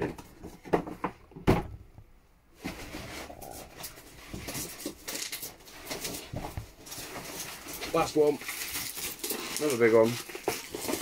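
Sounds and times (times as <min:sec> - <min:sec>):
packaging rustling and handling: 0:02.6 - 0:11.0.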